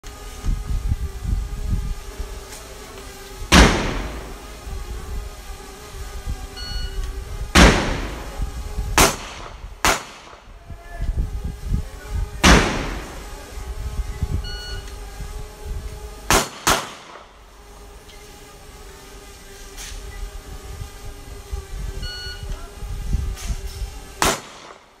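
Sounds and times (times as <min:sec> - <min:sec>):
gunshots with echo: 0:03.5 - 0:04.5, 0:07.6 - 0:08.4, 0:09.0 - 0:10.4, 0:12.4 - 0:13.3, 0:16.3 - 0:17.2, 0:24.2 - 0:24.8.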